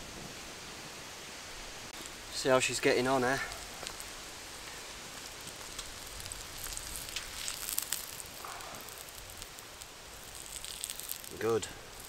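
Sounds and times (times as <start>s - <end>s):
fire crackling: 0.0s - 12.0s
steak sizzling on slate: 3.4s - 12.0s.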